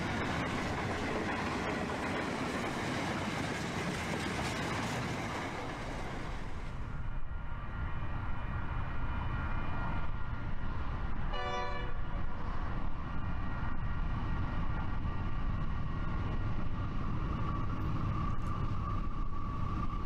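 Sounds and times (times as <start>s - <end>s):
train rumble: 0.0s - 20.0s
distant train horn blast: 11.3s - 12.1s.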